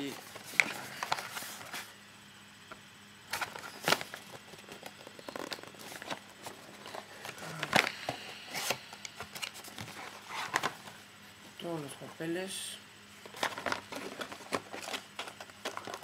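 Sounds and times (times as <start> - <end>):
cardboard and paper rustling: 0.0 - 1.9, 3.3 - 11.1, 13.2 - 16.0.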